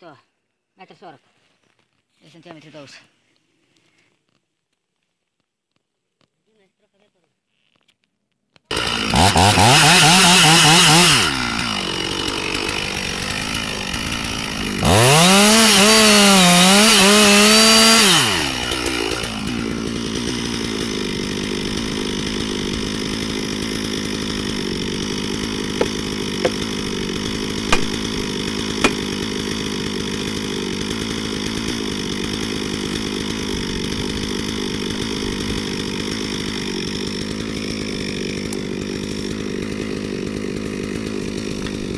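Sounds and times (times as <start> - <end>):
chainsaw revving: 8.7 - 41.9
sharp knocks: 25.8 - 26.7, 27.7 - 28.1, 28.8 - 29.1.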